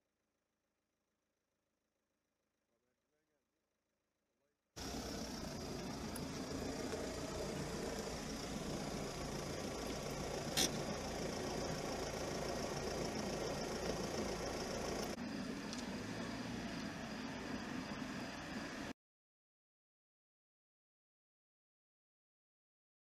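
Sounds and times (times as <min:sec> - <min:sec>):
distant traffic rumble: 0:04.8 - 0:18.9.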